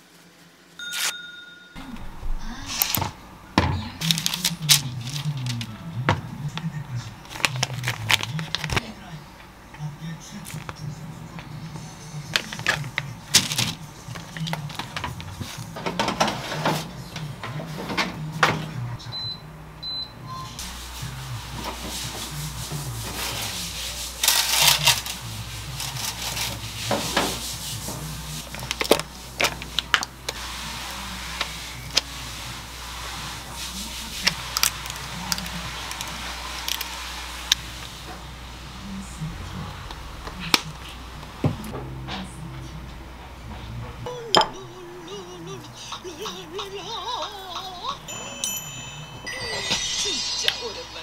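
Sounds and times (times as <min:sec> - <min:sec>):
plastic bag crinkling: 0:04.0 - 0:05.7, 0:07.1 - 0:08.8.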